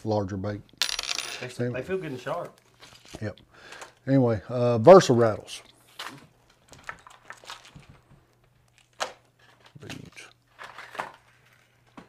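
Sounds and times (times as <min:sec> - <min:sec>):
plastic packaging crackling: 0:06.1 - 0:12.0.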